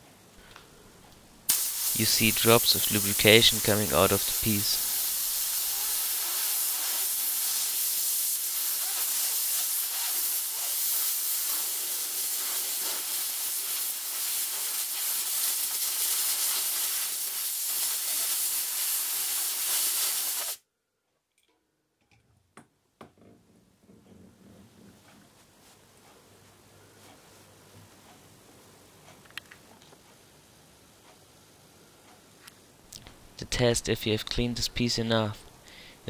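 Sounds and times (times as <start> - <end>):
compressed air hissing: 1.5 - 20.6.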